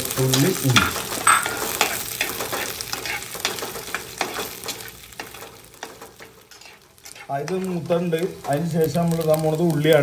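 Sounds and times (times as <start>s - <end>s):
food sizzling in oil: 0.0s - 10.0s
metal spatula scraping pot: 0.8s - 7.9s.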